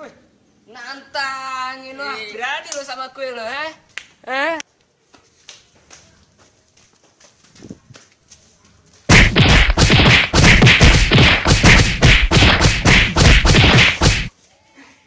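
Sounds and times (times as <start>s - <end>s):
punch and thud effects: 9.1s - 14.3s.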